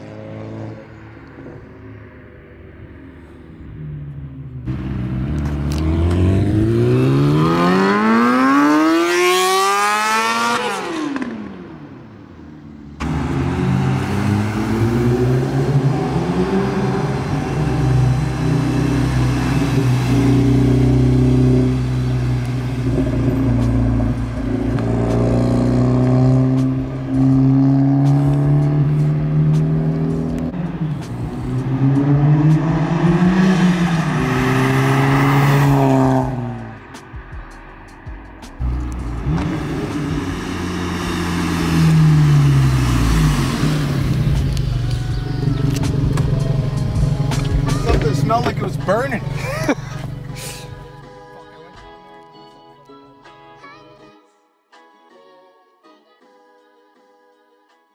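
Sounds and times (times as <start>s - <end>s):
car engine accelerating past: 4.6s - 12.0s, 13.0s - 37.0s, 38.6s - 50.8s.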